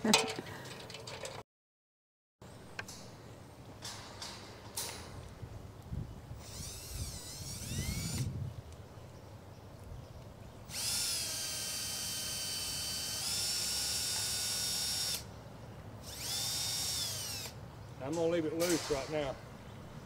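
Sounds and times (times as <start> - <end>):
cordless drill whining: 6.4 - 8.3, 10.7 - 15.2, 16.0 - 17.6.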